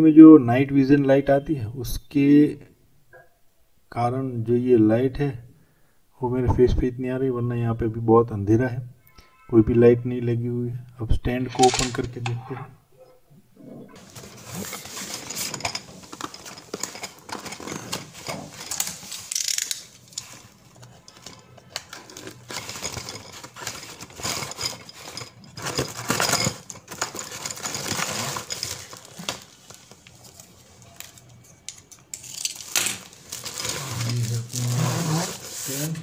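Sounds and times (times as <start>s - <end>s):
packaging rustling and scraping: 11.5s - 12.6s, 14.0s - 36.0s.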